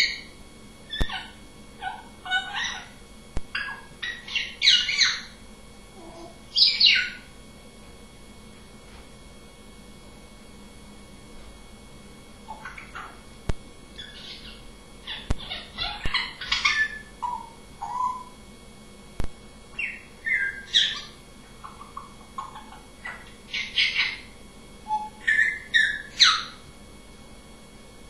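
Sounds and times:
parrot whistles and chirps: 0.0s - 0.3s, 0.9s - 5.4s, 6.2s - 7.3s, 12.5s - 13.2s, 14.0s - 18.4s, 19.8s - 26.6s.

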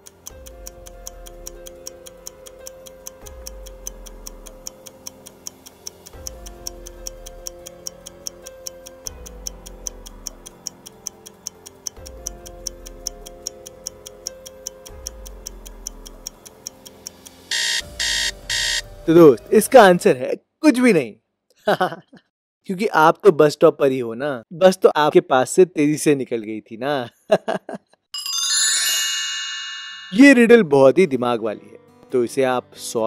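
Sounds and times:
stopwatch ticking: 0.0s - 18.8s
background music with bass line: 0.3s - 4.8s, 6.1s - 8.0s, 8.6s - 10.6s, 12.0s - 14.1s, 14.9s - 16.4s.

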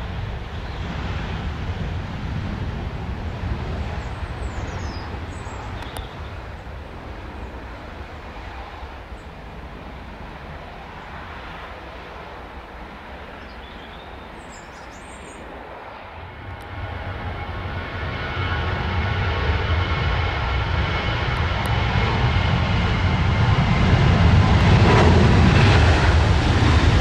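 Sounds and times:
jet engines rumbling: 0.0s - 27.0s.

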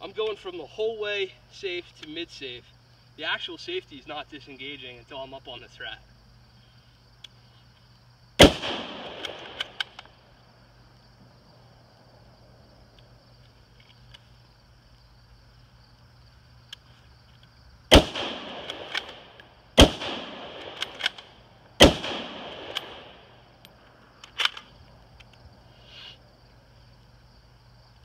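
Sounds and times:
rifle shots: 8.4s - 10.1s, 17.9s - 23.5s
rifle bolt clicking: 9.0s - 10.1s, 18.5s - 19.5s, 20.5s - 21.3s, 22.0s - 23.0s, 23.6s - 25.3s.

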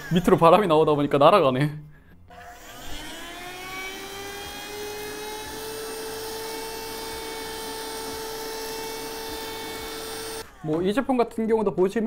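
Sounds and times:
handheld vacuum motor whine: 2.3s - 10.7s.

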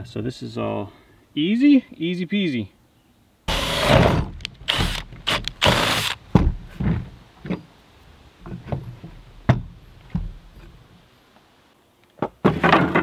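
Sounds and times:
cordless drill boring wood: 3.5s - 6.2s.

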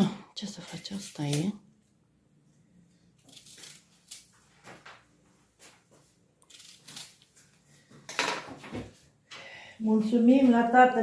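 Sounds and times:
kitchen things knocking and rustling: 8.0s - 9.0s.

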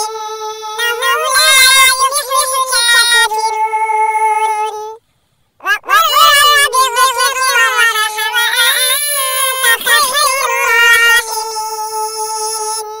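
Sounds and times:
high-pitched voice chanting: 0.0s - 5.0s, 5.6s - 13.0s.

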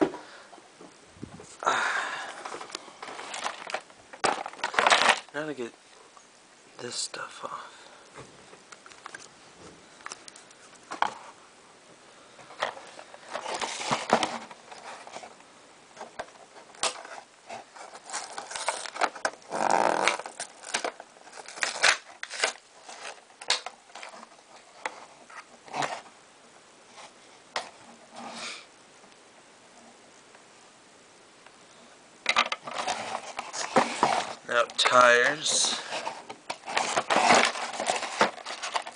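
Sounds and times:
cardboard box rustling: 2.3s - 5.3s, 12.6s - 15.4s, 16.0s - 26.1s, 32.6s - 38.9s
plastic parts clicking and tapping: 32.2s - 38.9s.

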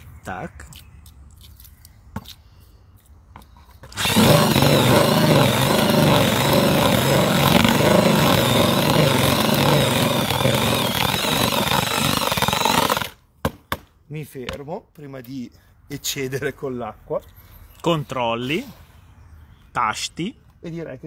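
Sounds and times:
cordless drill with paddle mixer: 3.8s - 13.2s.

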